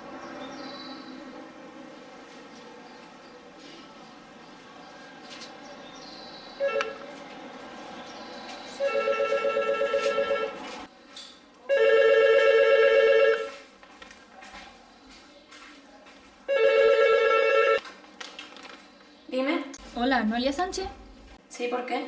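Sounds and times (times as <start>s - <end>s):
electronic telephone ringing: 6.6s - 7.0s, 8.8s - 10.6s, 11.8s - 13.5s, 16.5s - 17.8s.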